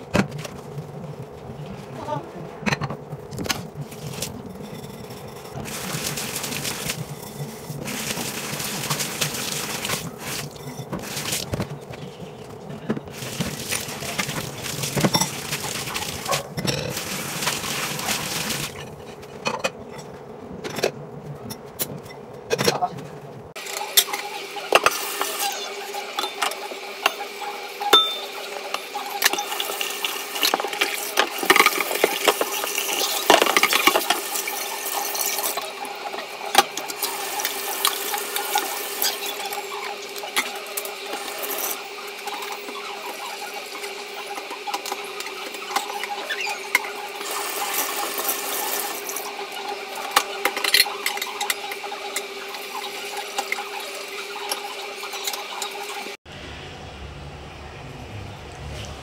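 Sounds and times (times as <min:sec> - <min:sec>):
faucet running into metal sink: 0:24.7 - 0:56.1
pot knocking and clattering: 0:27.9 - 0:34.2.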